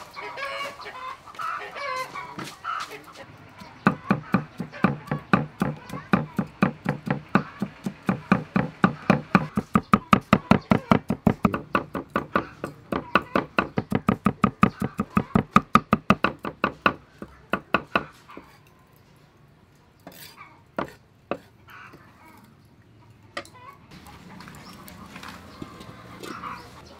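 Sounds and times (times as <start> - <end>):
cleaver chopping on wooden board: 3.6 - 18.2.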